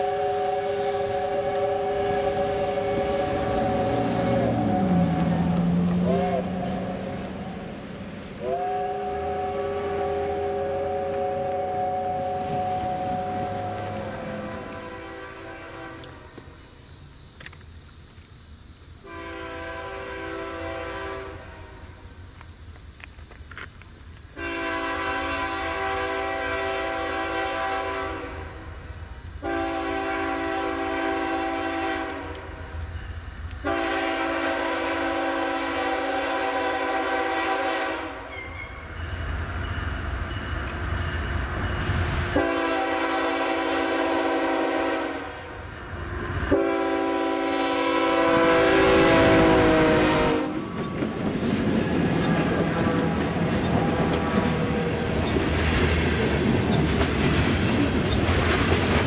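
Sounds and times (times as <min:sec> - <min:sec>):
locomotive air horn blasts: 0:00.0 - 0:07.7, 0:08.4 - 0:16.4, 0:19.0 - 0:21.9, 0:24.4 - 0:28.5, 0:29.4 - 0:32.6, 0:33.6 - 0:38.6, 0:42.3 - 0:45.6, 0:46.4 - 0:50.8, 0:52.2 - 0:55.2
locomotive rumble: 0:00.0 - 0:16.7, 0:24.1 - 0:59.0.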